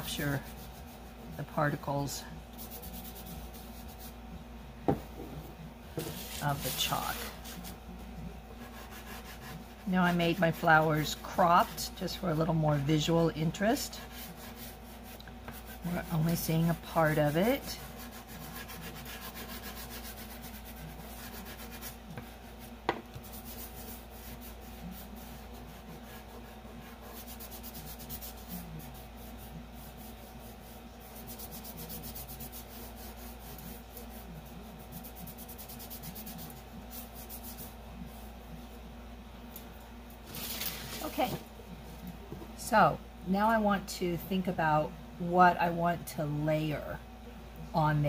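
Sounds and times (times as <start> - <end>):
fingertip rubbing pastel on paper: 0.0 - 1.8, 2.5 - 4.2, 6.0 - 7.8, 8.6 - 38.2
faint steady hum: 0.0 - 48.0.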